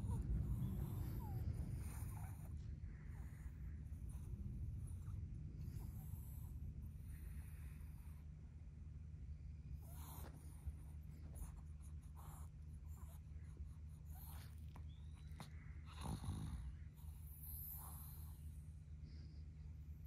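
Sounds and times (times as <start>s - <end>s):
low hum: 0.0s - 15.9s.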